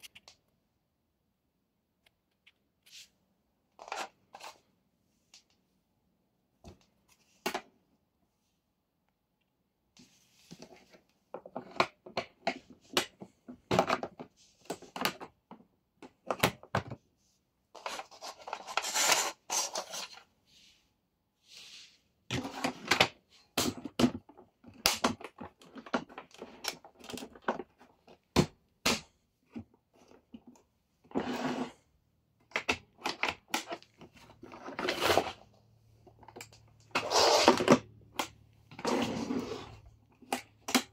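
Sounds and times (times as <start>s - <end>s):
plastic parts clicking and scraping: 10.5s - 17.0s, 17.7s - 20.3s, 22.3s - 31.8s, 32.4s - 40.9s.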